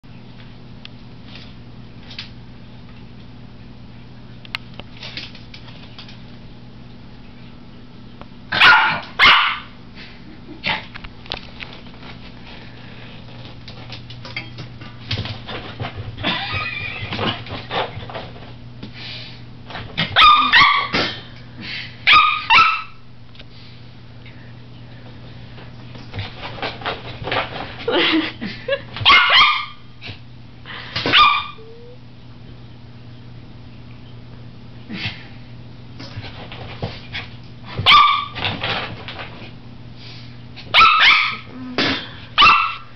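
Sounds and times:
small dog barking high-pitched: 0:08.5 - 0:09.8, 0:20.1 - 0:21.0, 0:22.0 - 0:23.0, 0:29.0 - 0:29.8, 0:31.1 - 0:31.7, 0:37.8 - 0:38.4, 0:40.7 - 0:41.5, 0:42.4 - 0:42.9.

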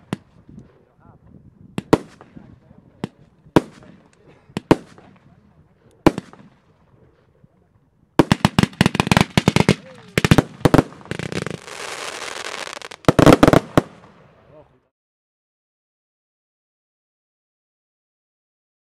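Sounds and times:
fireworks bangs and cracks: 0:01.7 - 0:05.4, 0:06.0 - 0:06.6, 0:08.2 - 0:14.2
fireworks crackling hiss: 0:08.2 - 0:14.1.

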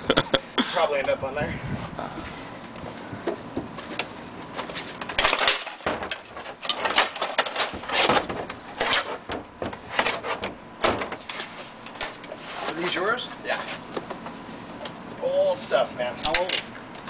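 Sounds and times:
wooden frames cracking and crashing: 0:04.6 - 0:11.3.

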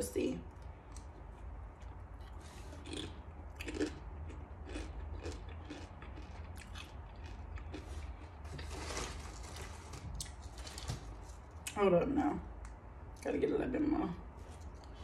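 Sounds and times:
chewing crunchy chips: 0:00.6 - 0:09.2.

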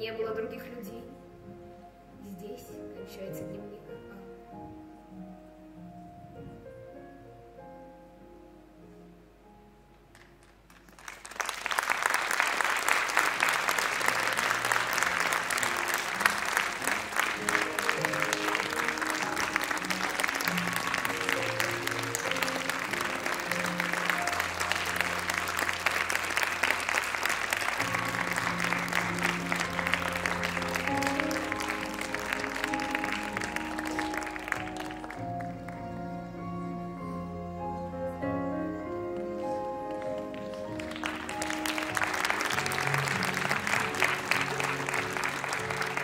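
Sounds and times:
audience applauding: 0:10.1 - 0:36.0, 0:39.4 - 0:46.0
music playing: 0:11.4 - 0:46.0.

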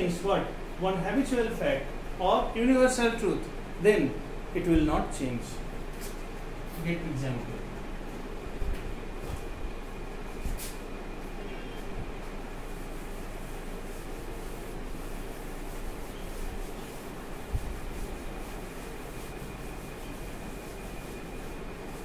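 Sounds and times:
duster rubbing chalkboard: 0:11.8 - 0:22.0.

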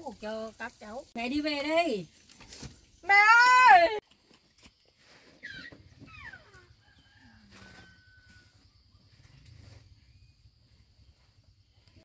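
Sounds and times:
faint animal calls: 0:05.4 - 0:09.4.

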